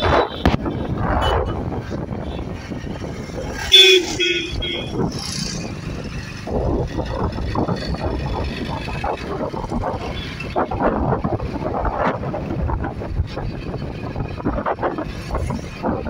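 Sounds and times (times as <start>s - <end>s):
motorcycle engine rumble: 0.0s - 16.0s
tyres on road: 0.0s - 16.0s
wind buffeting microphone: 0.0s - 16.0s.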